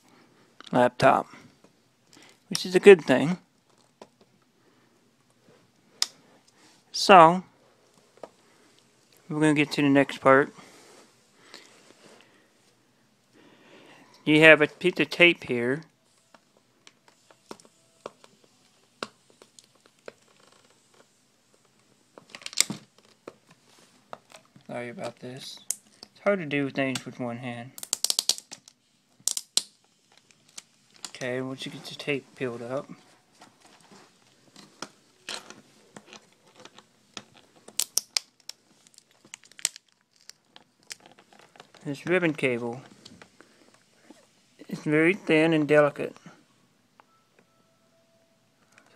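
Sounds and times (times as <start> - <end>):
tape peeling rustle: 16.1 - 25.2, 33.3 - 44.3.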